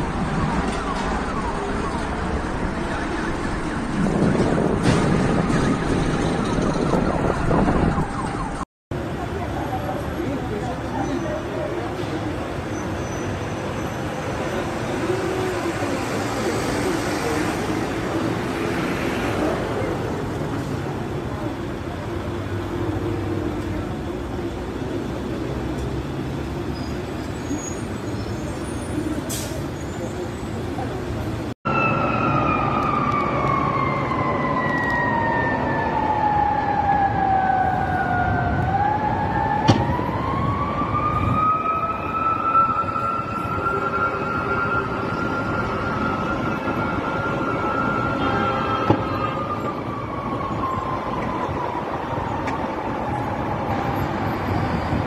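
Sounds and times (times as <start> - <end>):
emergency siren wailing: 0.0 - 8.7, 13.6 - 25.2, 31.7 - 55.0
city traffic noise: 0.0 - 55.0
vehicles driving past: 0.0 - 55.0.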